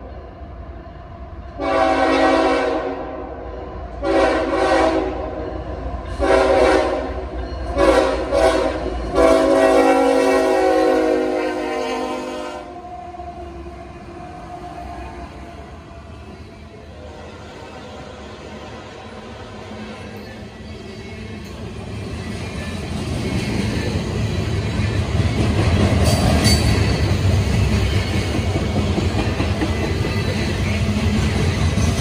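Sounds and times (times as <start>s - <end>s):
freight train rumbling: 0.0s - 32.0s
locomotive air horn blasts: 1.6s - 3.2s, 4.0s - 5.4s, 6.2s - 7.2s, 7.8s - 12.8s.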